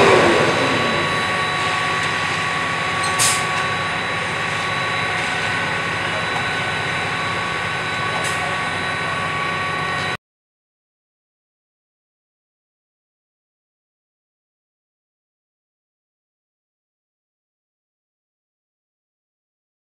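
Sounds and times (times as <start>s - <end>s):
concrete mixer truck whining: 0.0s - 10.2s.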